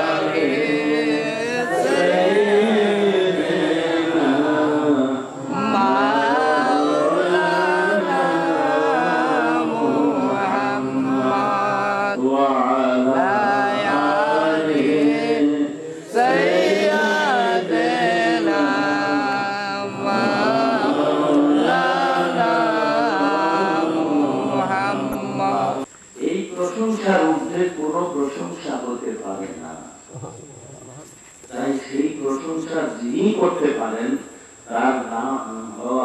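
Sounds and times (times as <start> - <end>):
man chanting into a microphone: 0.0 - 21.4.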